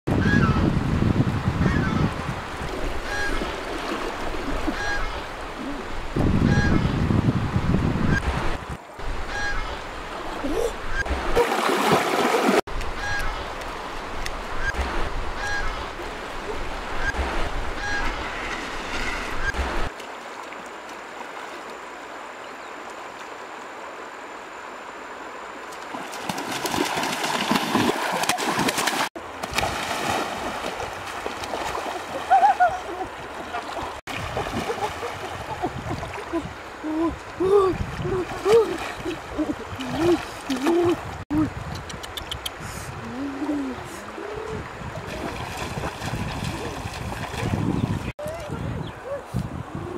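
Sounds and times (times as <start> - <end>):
river water rushing: 2.1 - 6.2, 8.4 - 41.2
geese honking: 3.0 - 3.4, 4.7 - 5.3, 6.5 - 7.0, 9.3 - 9.8, 13.0 - 13.4, 15.4 - 15.9, 17.8 - 18.2
heavy splashing in water: 11.2 - 12.7, 25.9 - 36.6, 37.4 - 41.2, 45.0 - 48.1.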